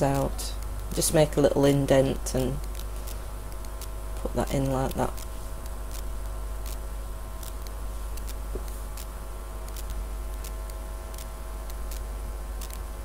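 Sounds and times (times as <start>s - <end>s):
low electrical hum: 0.0s - 13.0s
faint ticking clicks: 2.1s - 6.8s, 7.4s - 12.9s.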